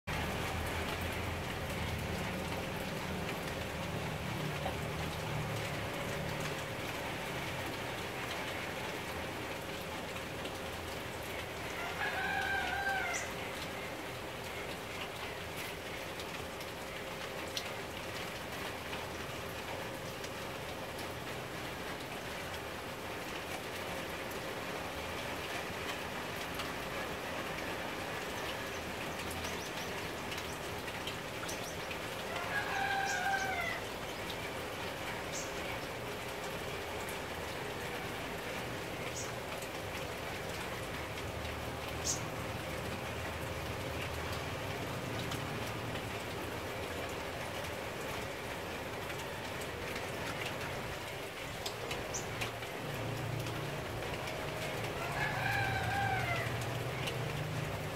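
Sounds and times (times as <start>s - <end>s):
sprinkler spray on leaves: 23.8s - 57.9s.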